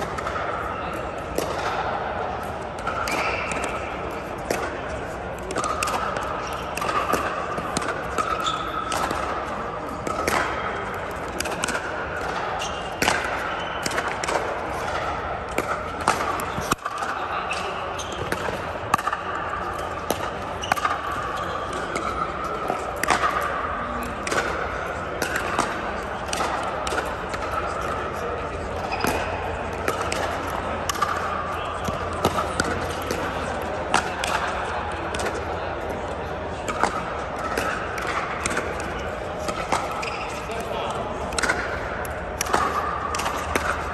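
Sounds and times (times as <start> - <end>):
steady background hum: 0.0 - 43.9
ball bouncing on court: 2.8 - 27.9, 36.7 - 43.9.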